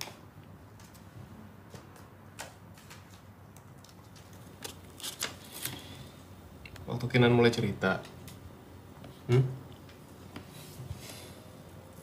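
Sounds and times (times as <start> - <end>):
faint room hiss: 0.0 - 12.0.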